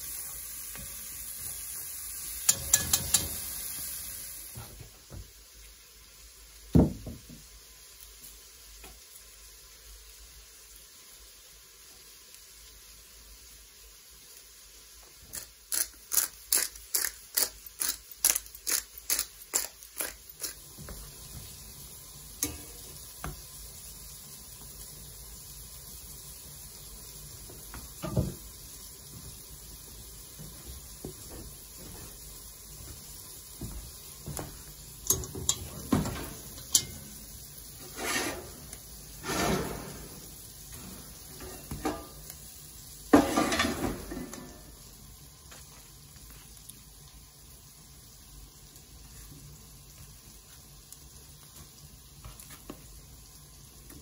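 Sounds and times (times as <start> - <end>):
pots and dishes clinking: 2.4 - 3.6, 22.4 - 22.9, 27.9 - 28.4, 35.0 - 42.4, 43.1 - 44.8
utensil strokes against a bowl: 37.8 - 39.8.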